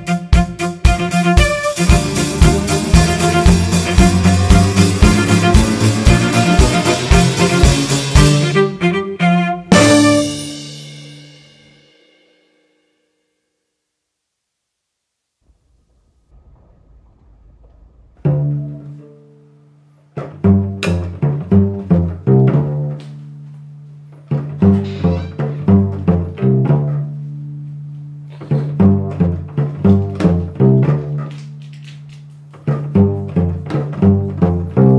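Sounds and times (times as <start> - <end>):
cello plucked notes: 0.0 - 10.6, 18.2 - 34.9.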